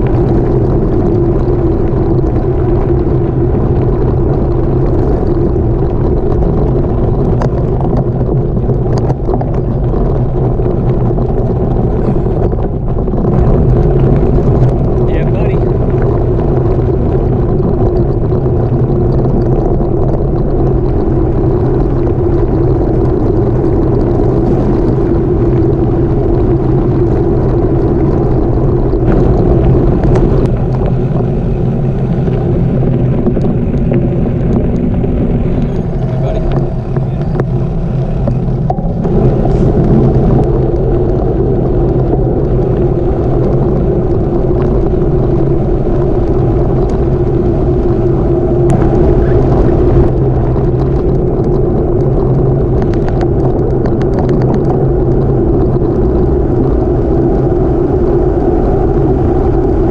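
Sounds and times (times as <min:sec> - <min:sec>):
bicycle tyres rolling over gravel: 0:00.0 - 0:59.9
wind buffeting microphone: 0:00.0 - 0:59.9.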